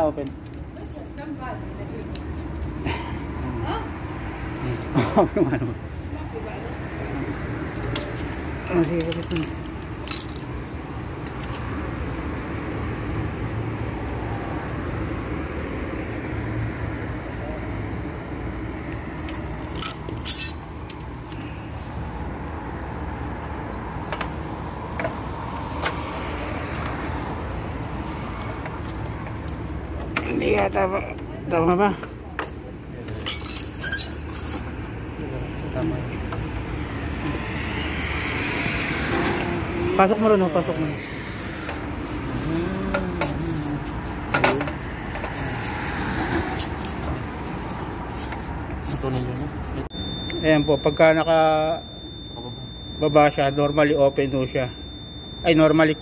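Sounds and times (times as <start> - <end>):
metal and plastic parts clinking: 19.6 - 21.5.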